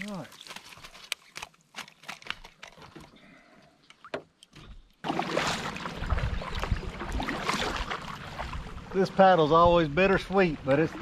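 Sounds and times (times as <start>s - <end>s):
water moving along hull: 4.8s - 11.0s
kayak paddle strokes: 5.0s - 8.8s.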